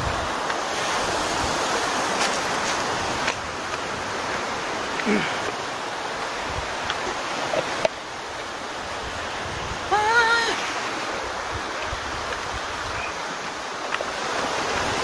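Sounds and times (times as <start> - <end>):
waves washing against rocky shore: 0.0 - 15.0
person calling out: 9.9 - 10.6.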